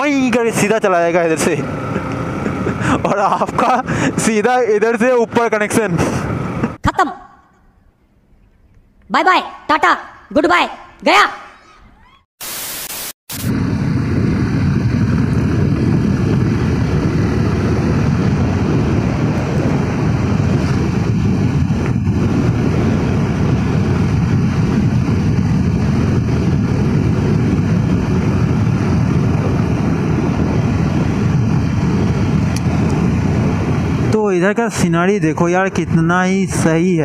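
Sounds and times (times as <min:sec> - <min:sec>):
motorcycle engine and tyres: 0:00.0 - 0:06.8, 0:13.4 - 0:35.8
wind over microphone: 0:00.0 - 0:06.8, 0:13.3 - 0:37.0.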